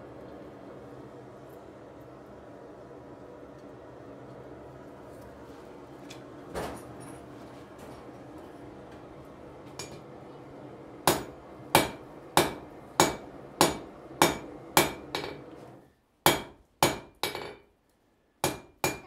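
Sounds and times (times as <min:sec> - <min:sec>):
hammer striking iron on anvil: 0:11.0 - 0:15.4, 0:16.2 - 0:17.6, 0:18.4 - 0:19.0.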